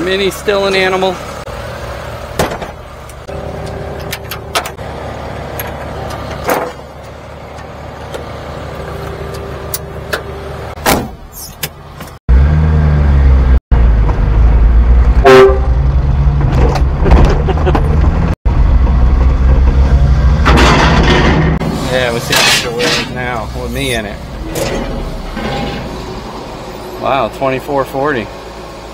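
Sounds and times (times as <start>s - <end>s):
metal knocks and clanks: 20.4s - 23.4s, 24.2s - 26.3s
truck engine idling: 23.0s - 28.9s.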